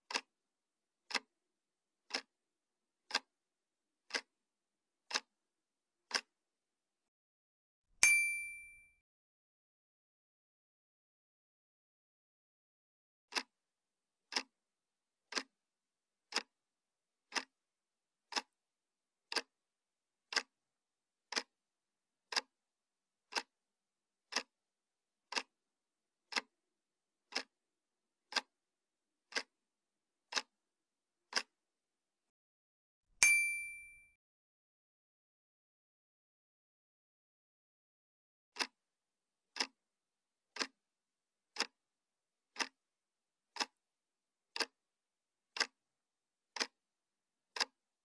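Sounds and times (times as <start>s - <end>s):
clock ticking: 0.0s - 0.3s, 1.1s - 1.3s, 2.1s - 2.3s, 3.1s - 3.4s, 4.1s - 4.4s, 5.0s - 5.4s, 6.1s - 6.4s, 13.3s - 13.5s, 14.3s - 14.6s, 15.3s - 15.6s, 16.2s - 16.6s, 17.2s - 17.6s, 18.3s - 18.6s, 19.3s - 19.6s, 20.2s - 20.6s, 21.3s - 21.6s, 22.3s - 22.6s, 23.3s - 23.6s, 24.3s - 24.6s, 25.3s - 25.6s, 26.3s - 26.6s, 27.3s - 27.6s, 28.3s - 28.6s, 29.3s - 29.6s, 30.3s - 30.6s, 31.3s - 31.6s, 38.6s - 38.8s, 39.5s - 39.8s, 40.5s - 40.8s, 41.5s - 41.8s, 42.5s - 42.8s, 43.5s - 43.8s, 44.5s - 44.9s, 45.5s - 45.8s, 46.5s - 46.8s, 47.5s - 47.8s
bright ding: 8.0s - 9.0s, 33.2s - 34.2s.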